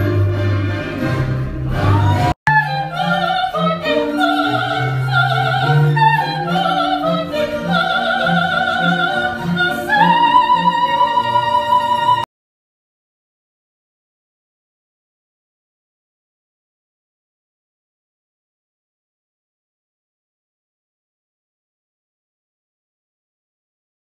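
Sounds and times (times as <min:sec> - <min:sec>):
operatic singing high voice: 0:00.0 - 0:12.3
orchestral accompaniment: 0:00.0 - 0:12.3.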